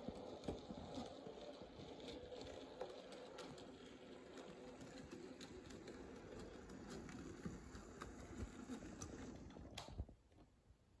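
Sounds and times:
model train hum: 0:00.0 - 0:09.5.

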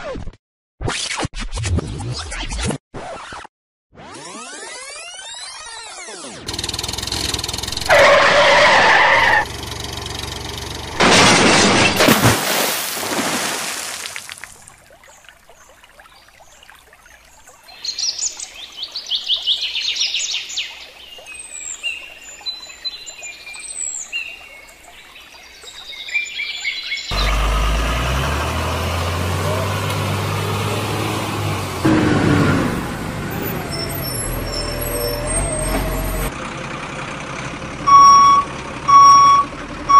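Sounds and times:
loud splashing into pond: 0:11.0 - 0:19.6.

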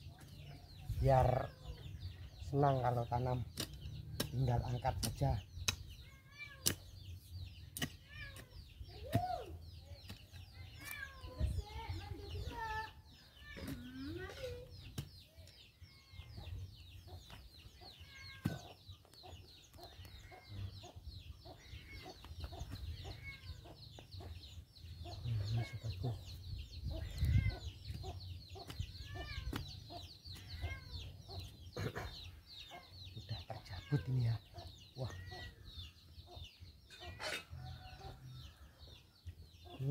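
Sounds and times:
chickens clucking: 0:16.3 - 0:38.2.

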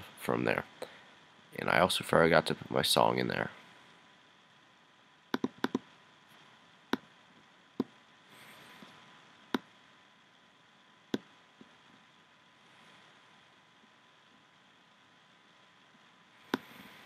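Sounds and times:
faint steady hiss: 0:00.0 - 0:17.0
computer mouse clicks: 0:05.3 - 0:05.9, 0:16.5 - 0:16.7.

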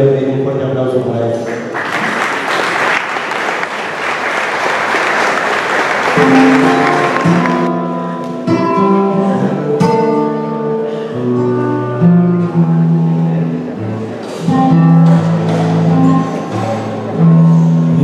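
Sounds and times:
audience applause: 0:01.5 - 0:07.7
acoustic guitar picking: 0:06.0 - 0:18.0.

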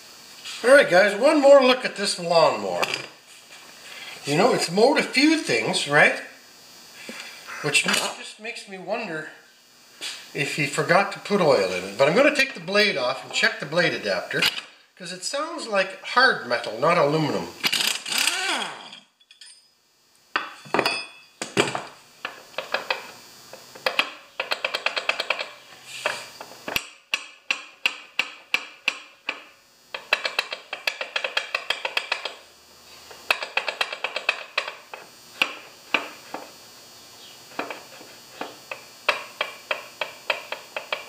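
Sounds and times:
ratchet wrench clicking: 0:17.6 - 0:19.0, 0:23.8 - 0:25.6, 0:26.8 - 0:32.4, 0:33.3 - 0:34.8.

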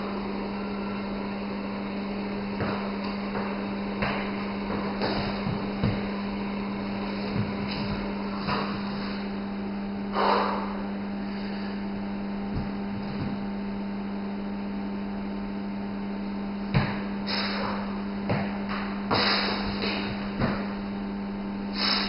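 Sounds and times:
low electrical mains hum: 0:00.0 - 0:22.0
hands and feet on gym floor: 0:02.4 - 0:09.4, 0:12.5 - 0:13.6, 0:16.8 - 0:20.8.

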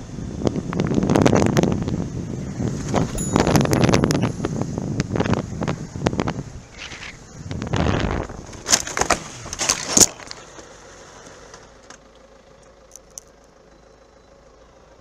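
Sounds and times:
motorcycle crashing on road: 0:06.8 - 0:10.4.

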